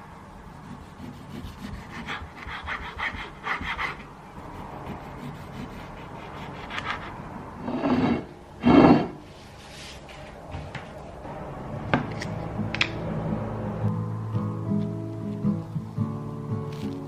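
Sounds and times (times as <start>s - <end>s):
knife slicing tomato: 0.5s - 7.2s.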